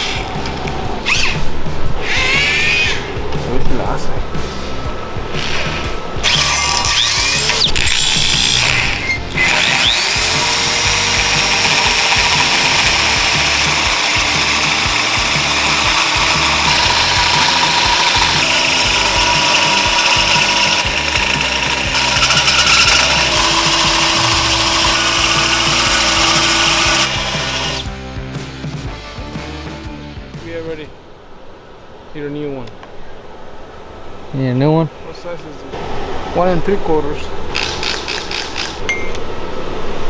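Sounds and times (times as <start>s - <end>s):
background music: 0.0s - 31.0s
hole saw grinding metal: 5.4s - 27.8s, 37.5s - 39.0s
electric drill cutting metal: 6.2s - 27.8s, 37.5s - 38.9s.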